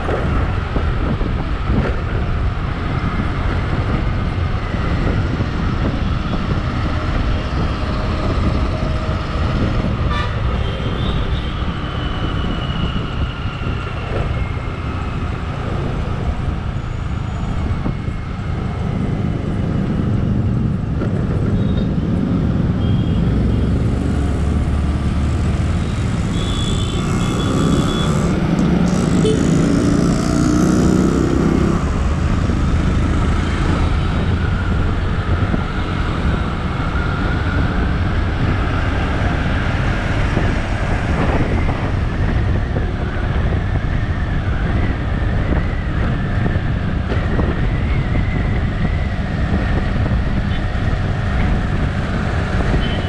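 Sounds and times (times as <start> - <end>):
wind on microphone: 0.0 - 22.8, 23.5 - 53.0
motorcycle engine and road noise: 0.0 - 53.0
vehicle horns tooting: 26.2 - 29.9, 52.7 - 53.0.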